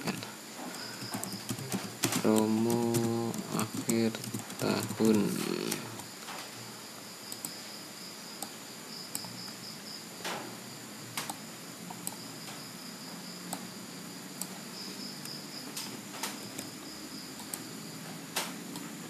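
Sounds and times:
room hiss: 0.0s - 19.0s
computer mouse clicks: 0.8s - 6.1s, 7.3s - 7.6s, 9.1s - 9.4s, 11.2s - 12.2s, 15.2s - 16.8s, 17.4s - 17.7s.

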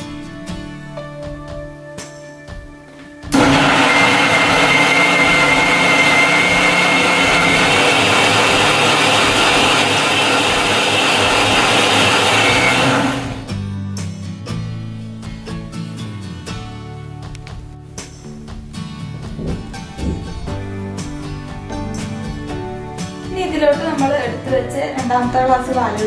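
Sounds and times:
mixer grinder motor whining: 3.3s - 13.5s.

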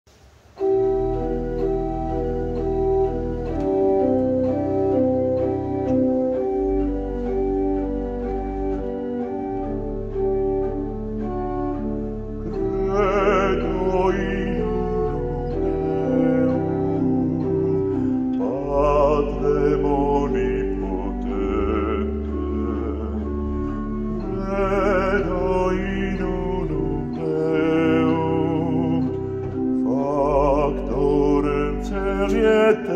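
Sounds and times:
pipe organ chords: 0.5s - 32.9s
man singing with vibrato: 12.4s - 32.9s.

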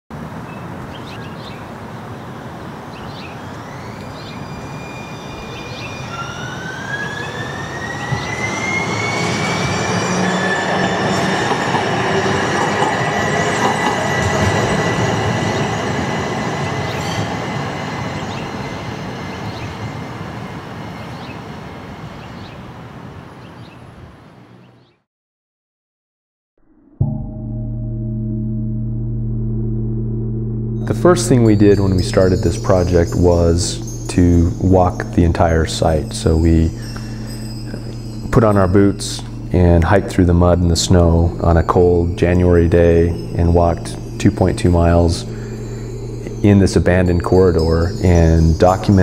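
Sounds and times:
streetcar rumbling past: 0.2s - 22.3s, 27.9s - 49.0s
high whine: 3.5s - 20.0s, 26.6s - 49.0s.

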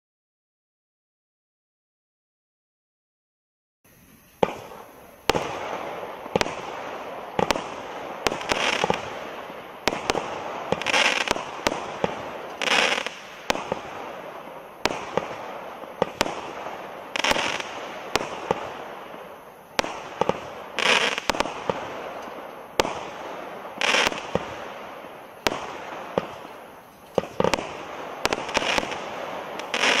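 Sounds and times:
firework hiss and crackle: 3.9s - 30.0s
firework reports: 3.9s - 30.0s.

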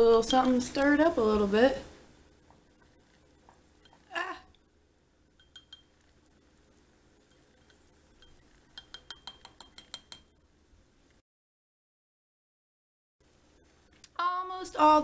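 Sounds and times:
stirrer clinking in glass jar: 5.4s - 6.1s, 7.3s - 10.4s.

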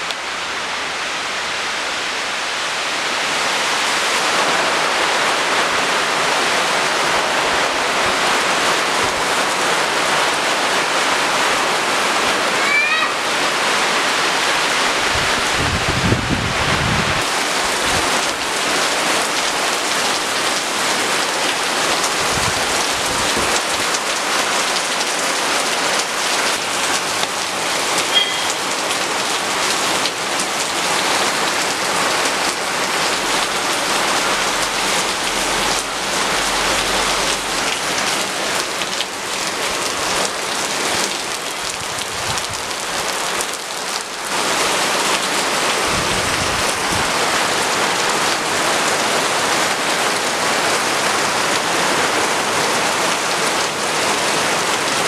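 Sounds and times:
heavy rain on leafy trees: 0.0s - 55.0s.

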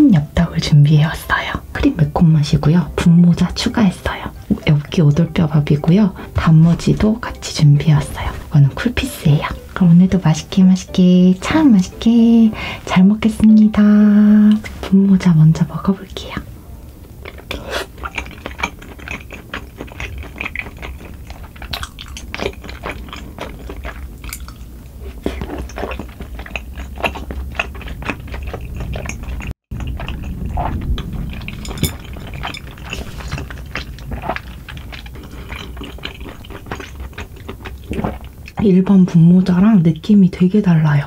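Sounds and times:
wet chewing and smacking: 17.2s - 38.6s.

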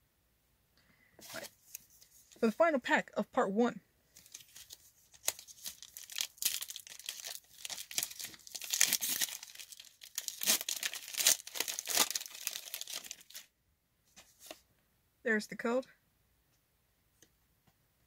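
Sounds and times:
foil wrapper crinkling and tearing: 4.2s - 13.5s.

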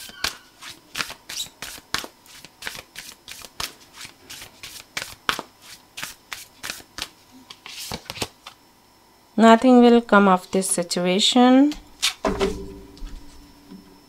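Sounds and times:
cards being shuffled: 0.0s - 8.6s.

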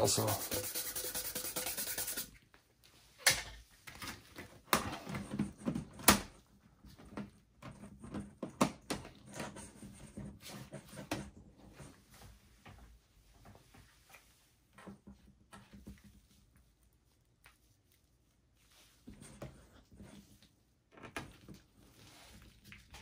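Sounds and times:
brush sweeping dust: 0.0s - 2.3s.

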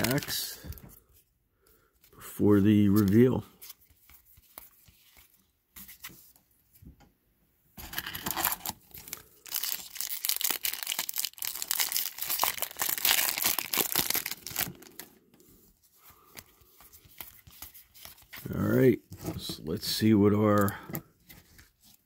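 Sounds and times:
foil wrapper tearing and crinkling: 7.8s - 15.1s.

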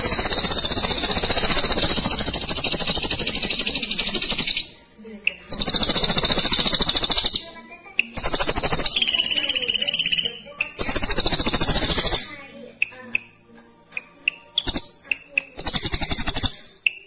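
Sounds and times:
bird singing rolling trills: 0.0s - 12.4s, 14.4s - 17.0s.

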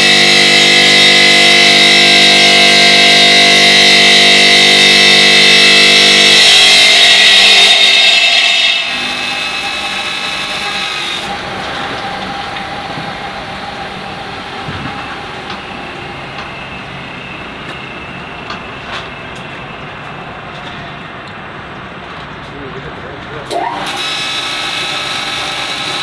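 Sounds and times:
saw blade cutting stone: 0.0s - 11.4s, 23.5s - 26.0s.

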